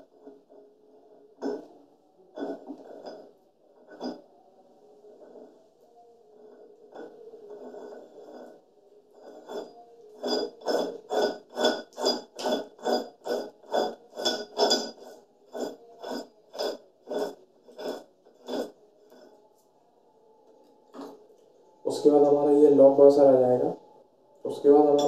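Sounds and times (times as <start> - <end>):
metal nut screwing on shaft: 2.3 - 4.2, 6.4 - 19.3, 24.8 - 25.0.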